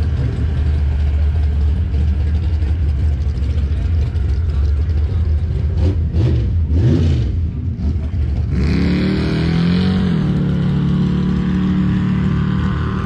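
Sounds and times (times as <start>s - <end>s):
truck engine idling: 0.0s - 6.7s
engine revving: 0.0s - 13.0s.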